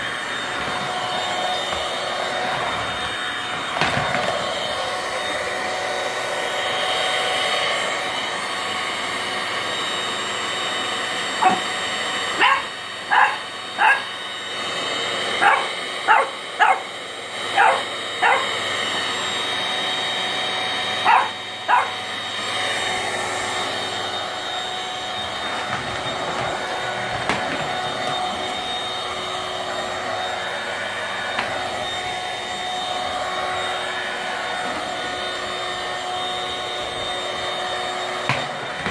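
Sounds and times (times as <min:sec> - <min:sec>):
vacuum cleaner running: 0:00.0 - 0:38.9
puppy barking: 0:11.3 - 0:11.7, 0:12.3 - 0:14.2, 0:15.4 - 0:18.6, 0:21.0 - 0:22.1.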